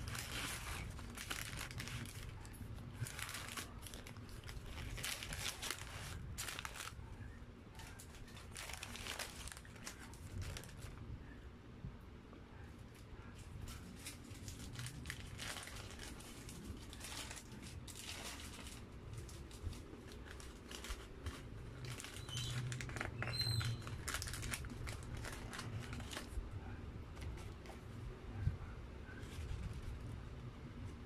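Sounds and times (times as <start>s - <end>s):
paper wrapper crinkling: 0.0s - 11.0s, 13.7s - 26.4s.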